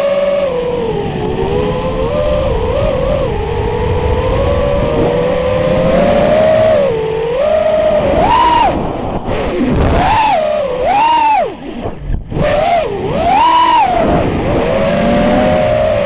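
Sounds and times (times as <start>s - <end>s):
quadcopter motors whining: 0.0s - 16.0s
rushing noise: 0.6s - 16.0s.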